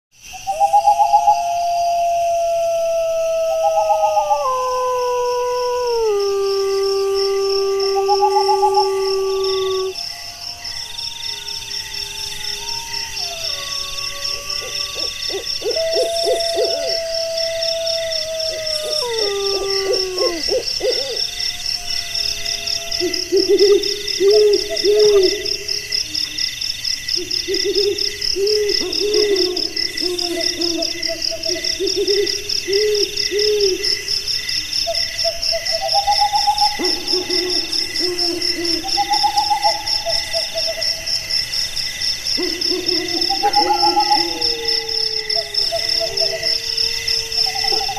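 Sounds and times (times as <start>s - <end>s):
insects trilling in fast pulses: 0.2s - 47.9s
repeated low hoots: 0.5s - 25.8s, 42.4s - 47.9s
wavering gliding howls: 0.6s - 25.8s, 42.4s - 47.9s.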